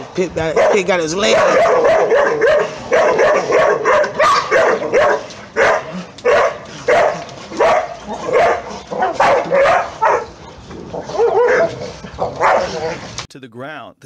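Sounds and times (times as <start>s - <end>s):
dogs fighting: 0.4s - 13.3s
dog barking: 0.5s - 10.4s, 11.1s - 12.9s.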